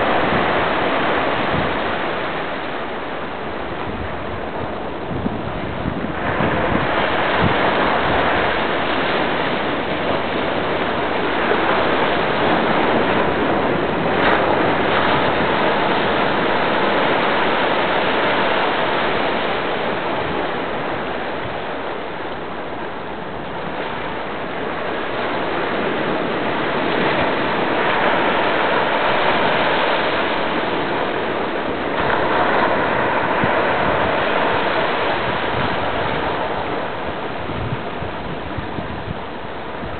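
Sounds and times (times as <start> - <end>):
surf breaking on shore: 0.0 - 39.9.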